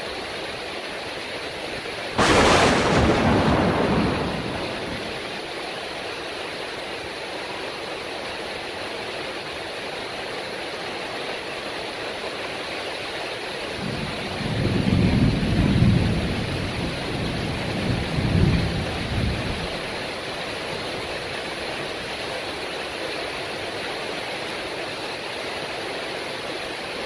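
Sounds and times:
heavy rain: 0:00.0 - 0:27.0
loud thunderclap: 0:02.2 - 0:05.5.

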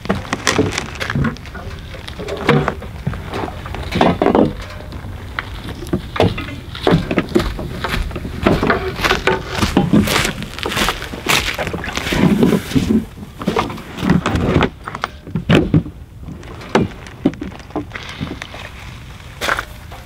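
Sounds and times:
gear knocking in canoe: 0:00.0 - 0:14.8
heavy thuds: 0:00.0 - 0:14.8.

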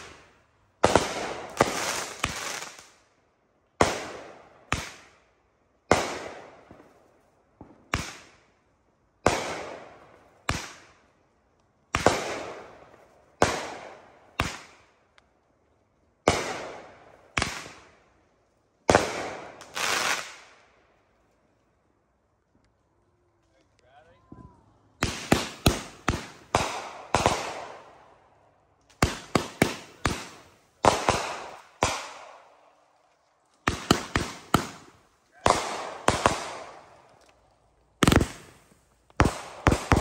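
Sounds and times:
fireworks bursting with echo: 0:00.0 - 0:03.0, 0:03.8 - 0:05.2, 0:05.8 - 0:08.5, 0:09.2 - 0:11.1, 0:11.8 - 0:15.1, 0:16.2 - 0:18.1, 0:18.8 - 0:20.8, 0:24.2 - 0:40.0.

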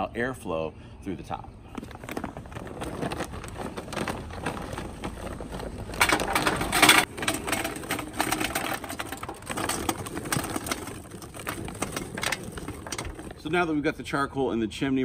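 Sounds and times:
briquettes knocking: 0:01.8 - 0:13.5
charcoal clattering into metal: 0:01.9 - 0:13.6.

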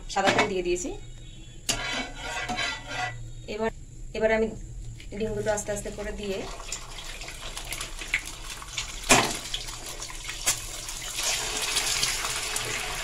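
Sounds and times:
eggs sizzling in oil: 0:05.4 - 0:13.0.

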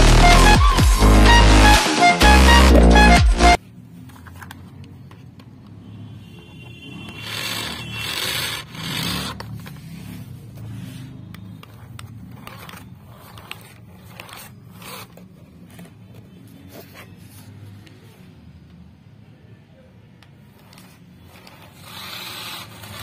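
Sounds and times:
toy car motor whirring: 0:07.0 - 0:15.8, 0:20.6 - 0:23.0.

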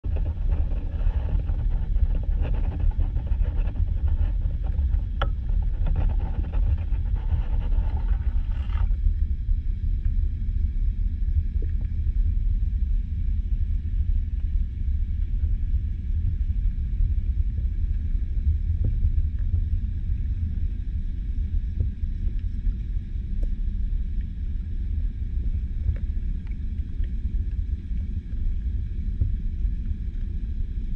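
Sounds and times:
faint crackling and ticking: 0:00.0 - 0:10.4, 0:14.3 - 0:30.9
muffled underwater rumble: 0:00.0 - 0:30.9.

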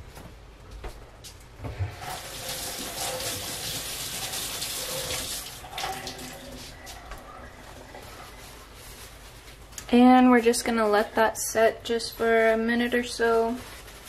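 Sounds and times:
tap water running into sink: 0:01.9 - 0:06.8.

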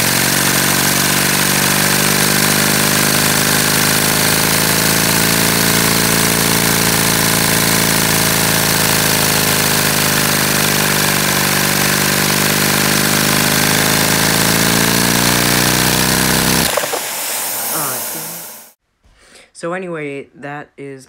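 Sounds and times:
small engine plastic rattle: 0:15.9 - 0:17.1
air rushing: 0:16.6 - 0:18.7.

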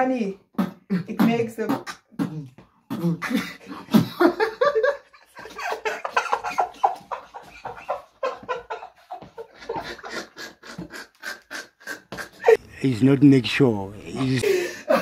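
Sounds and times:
young men laughing: 0:03.2 - 0:12.7, 0:14.1 - 0:15.0.

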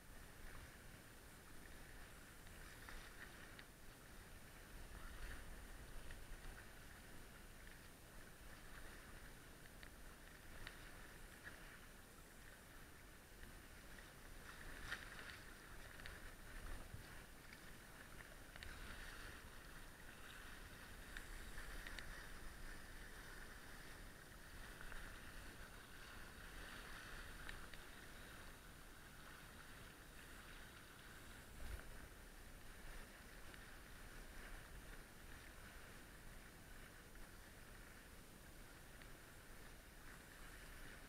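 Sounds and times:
water rushing along hulls: 0:00.0 - 0:41.0
light ticks: 0:02.4 - 0:03.8, 0:05.9 - 0:06.7, 0:09.6 - 0:11.6, 0:14.8 - 0:16.2, 0:16.8 - 0:18.8, 0:21.1 - 0:22.3, 0:27.4 - 0:27.9.

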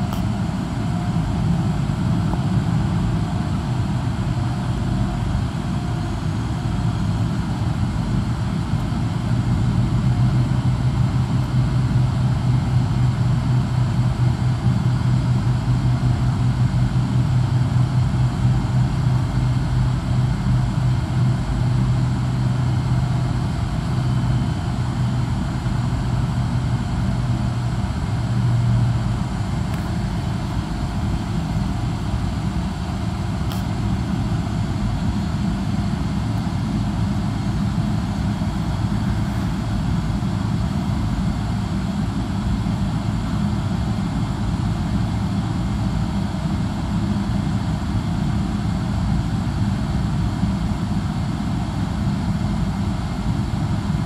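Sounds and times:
distant jet engines rumbling: 0:27.1 - 0:40.6.

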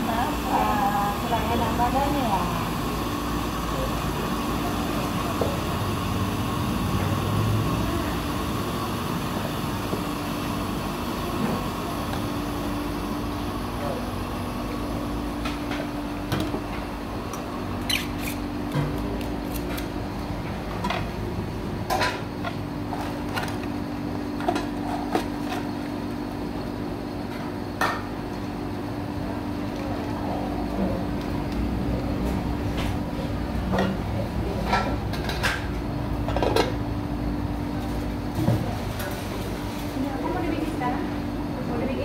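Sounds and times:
ice shaving machine humming: 0:00.0 - 0:20.1.

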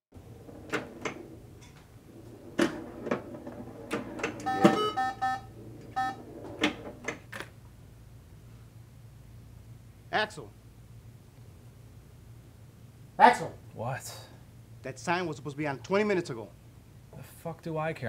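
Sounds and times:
electronic scoring beeps: 0:04.4 - 0:06.2.

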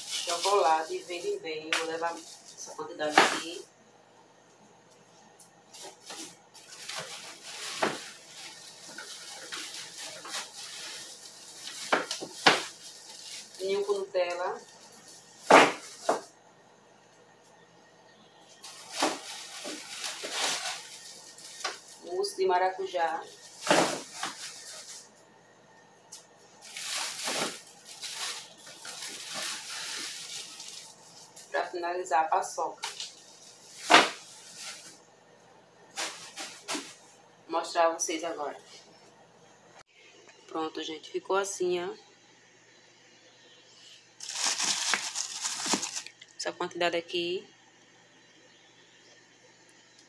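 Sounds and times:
plastic bags rustling: 0:00.0 - 0:03.6, 0:05.6 - 0:16.3, 0:18.4 - 0:25.2, 0:26.1 - 0:31.8, 0:32.6 - 0:35.1, 0:35.9 - 0:37.2, 0:44.2 - 0:46.3.

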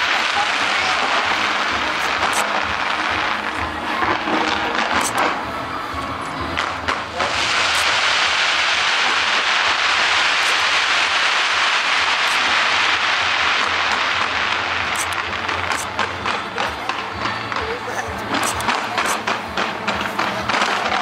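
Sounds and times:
sharp firework pops: 0:00.0 - 0:05.4, 0:06.6 - 0:17.6
fireworks crackling: 0:00.0 - 0:21.0.

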